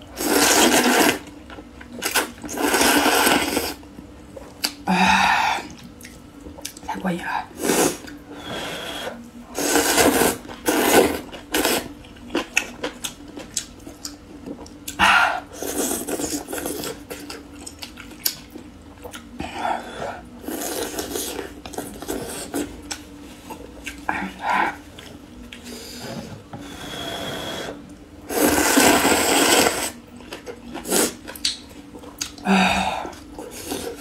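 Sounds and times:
noodle slurping: 0.2s - 1.3s, 2.0s - 3.8s, 7.6s - 11.9s, 27.0s - 30.0s
wet chewing: 28.8s - 32.4s.

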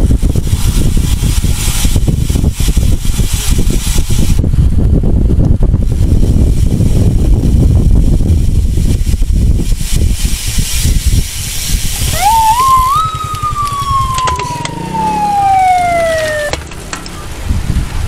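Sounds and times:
wind on microphone: 0.0s - 18.0s
siren winding up and down: 12.1s - 16.6s.

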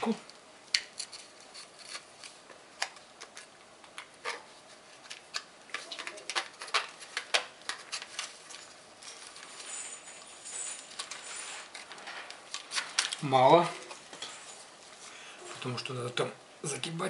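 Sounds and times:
scratchy rustle: 9.0s - 13.0s.

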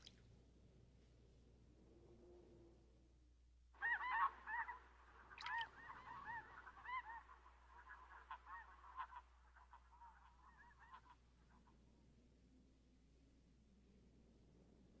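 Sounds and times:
geese honking: 3.8s - 11.2s.

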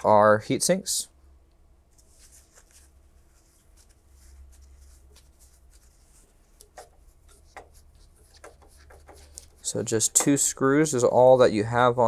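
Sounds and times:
screwdriver scratching and clicking: 6.6s - 9.6s.

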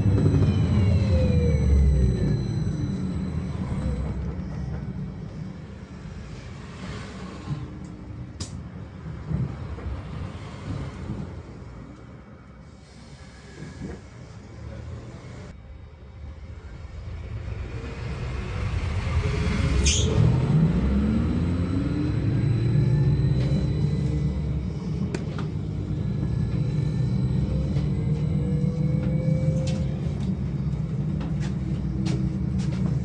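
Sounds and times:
electric motor whine rising: 0.0s - 4.3s, 19.6s - 31.2s
low running rumble: 0.0s - 5.6s, 16.6s - 33.0s.

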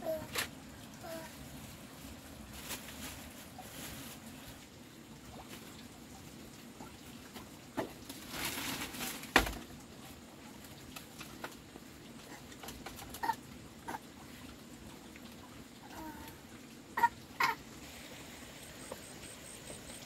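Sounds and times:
plastic bag rustling: 0.0s - 4.7s, 7.9s - 9.8s.

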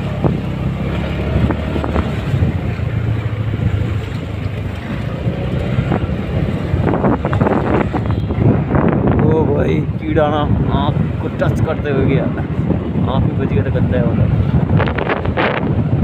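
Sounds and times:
motorcycle engine running: 0.0s - 9.3s
wind buffeting microphone: 0.0s - 16.0s.

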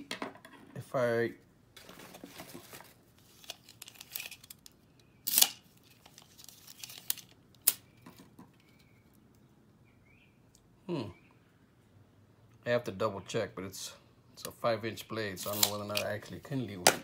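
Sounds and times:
tape measure clicks and rattles: 15.4s - 16.2s.

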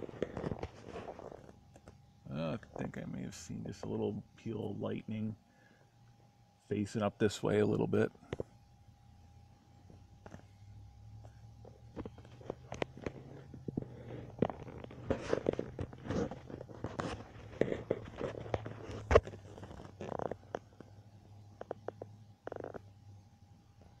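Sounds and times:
close clicks and crackles: 0.0s - 2.0s, 9.9s - 10.6s, 11.2s - 22.9s
steady low hum: 0.0s - 24.0s.

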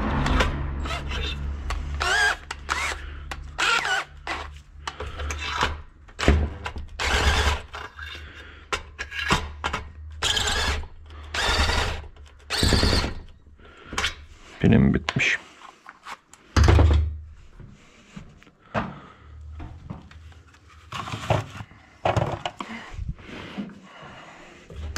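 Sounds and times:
cordless drill short bursts: 2.0s - 3.0s, 10.2s - 13.2s.

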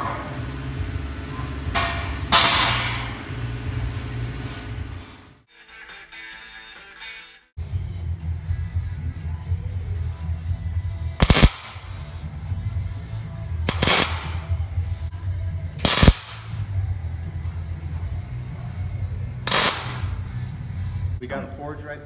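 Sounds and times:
welding arc crackle bursts: 11.2s - 12.0s, 13.7s - 14.6s, 15.8s - 16.6s, 19.5s - 20.2s.

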